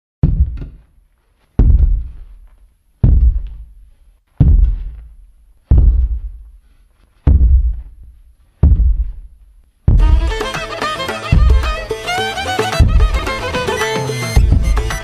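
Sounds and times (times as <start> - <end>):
giant footsteps booming: 0.2 - 6.6, 7.2 - 10.4, 11.3 - 11.8, 12.8 - 13.4, 14.4 - 15.0
folk music with fiddle: 10.0 - 15.0.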